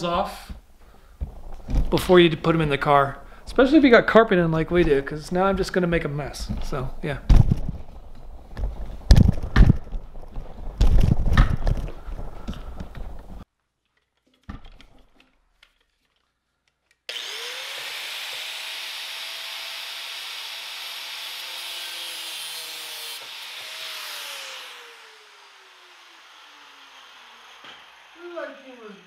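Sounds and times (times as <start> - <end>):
angle grinder cutting metal: 17.1 - 29.0.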